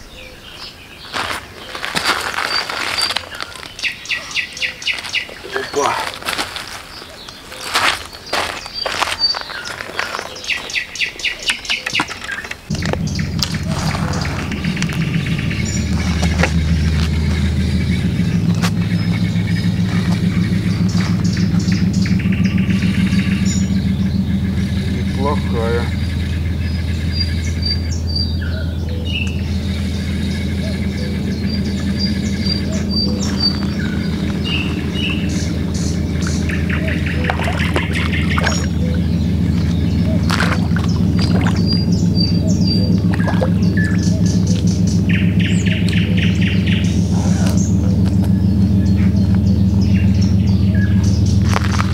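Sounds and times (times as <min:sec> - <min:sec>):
engine humming: 0:00.0 - 0:51.9
small birds chirping: 0:00.0 - 0:51.9.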